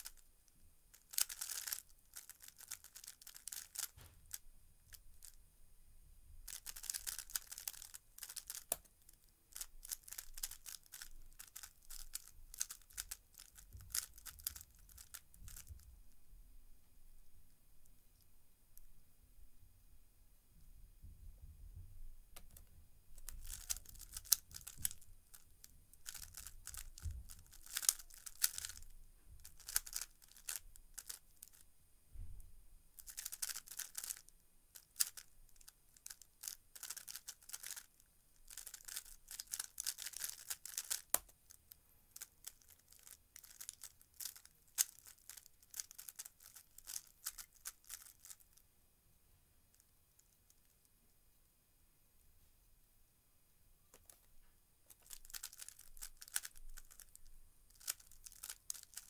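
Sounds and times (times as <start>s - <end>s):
puzzle cube turning clatter: 0.0s - 0.3s, 0.9s - 5.4s, 6.5s - 15.8s, 23.2s - 31.6s, 33.0s - 48.6s, 54.9s - 59.0s.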